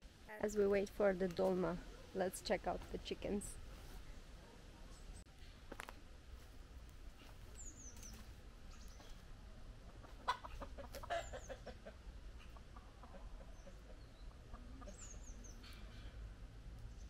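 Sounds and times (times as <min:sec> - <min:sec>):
chickens clucking: 0:07.2 - 0:16.3.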